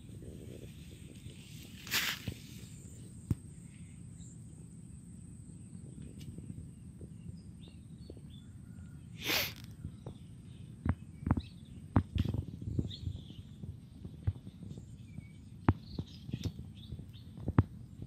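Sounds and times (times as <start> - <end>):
short hissing bursts: 9.2 - 9.7.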